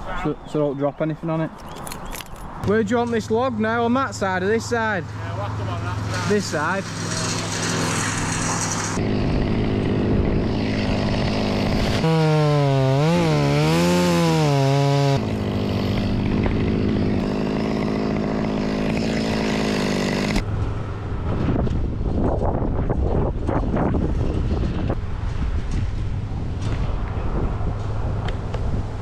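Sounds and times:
chainsaw cutting wood: 0:06.2 - 0:20.4.

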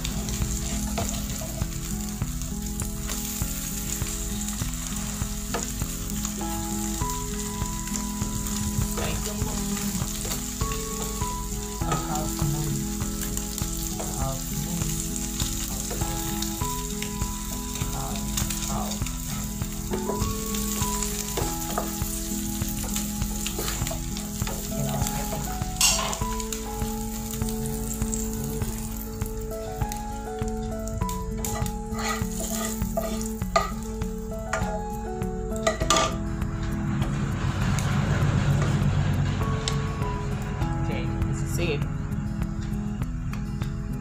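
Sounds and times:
omelette sizzling in a frying pan: 0:00.0 - 0:36.2
wooden spatula scraping and tapping: 0:31.4 - 0:33.8.

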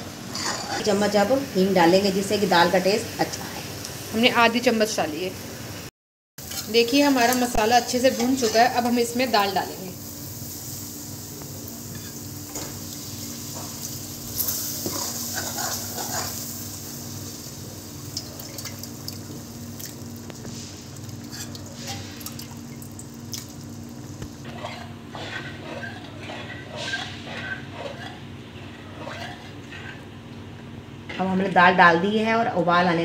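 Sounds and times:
liquid sizzling and splashing in pan: 0:06.4 - 0:28.1
ladle stirring and knocking pan: 0:24.4 - 0:30.0.

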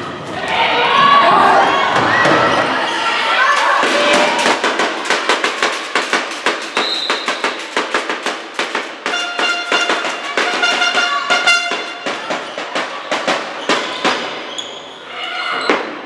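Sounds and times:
spectators clapping rapidly: 0:03.6 - 0:13.6
horn-like note: 0:09.1 - 0:12.0.

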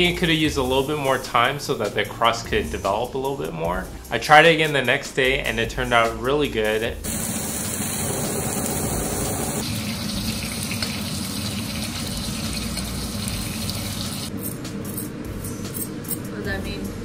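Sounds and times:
steak sizzling in butter: 0:07.1 - 0:14.3.

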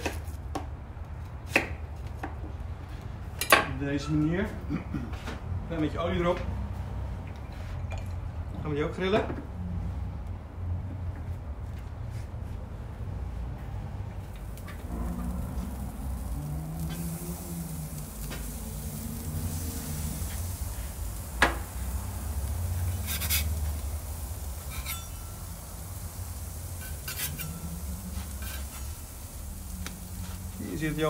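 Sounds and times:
steady low rumble: 0:12.3 - 0:23.0
food sizzling on a grill: 0:14.2 - 0:31.0
metal spatula scraping a grate: 0:14.8 - 0:18.2, 0:22.7 - 0:23.8, 0:24.6 - 0:29.2.

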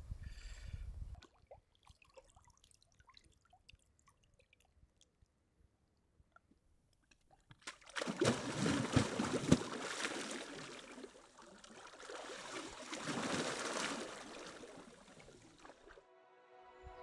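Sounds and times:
water splashing: 0:07.0 - 0:16.0.

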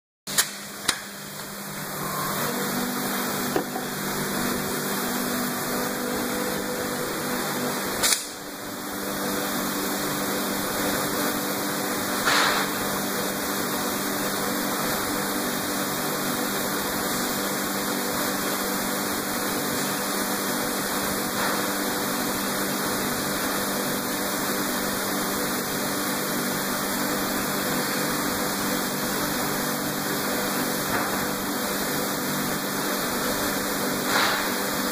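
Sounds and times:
machine motors humming: 0:00.9 - 0:12.1.

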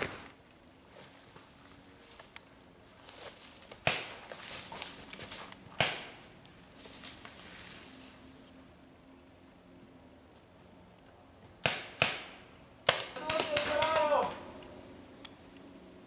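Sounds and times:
footsteps in dry leaves: 0:00.0 - 0:08.6
rustling in dry leaves: 0:00.0 - 0:08.8
paintball marker shots: 0:05.8 - 0:06.2, 0:11.6 - 0:14.4.

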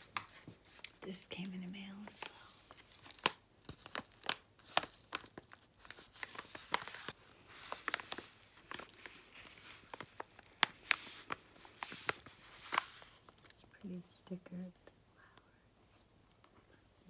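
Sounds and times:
paper envelope crinkling: 0:00.0 - 0:13.6.

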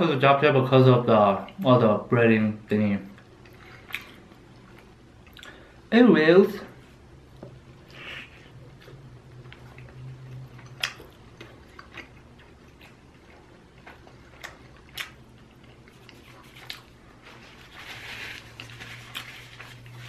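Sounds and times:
low steady hum: 0:00.0 - 0:20.0
chewing crunchy fried food: 0:07.9 - 0:20.0.

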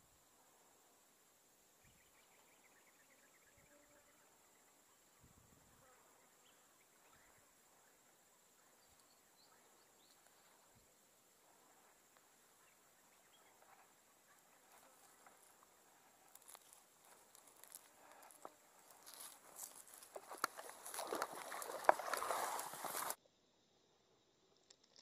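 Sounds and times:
grass and fishing gear rustling: 0:09.8 - 0:23.2.

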